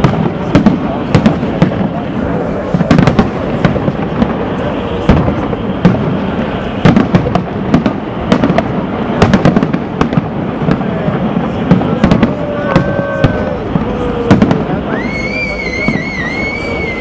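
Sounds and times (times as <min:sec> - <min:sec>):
firework shells bursting: 0:00.0 - 0:16.9
whistle-like tone: 0:14.9 - 0:17.0.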